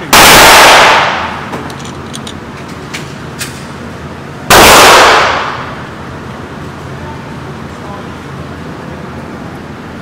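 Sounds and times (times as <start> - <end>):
handgun shot with echo: 0.1 - 1.3, 4.5 - 5.6.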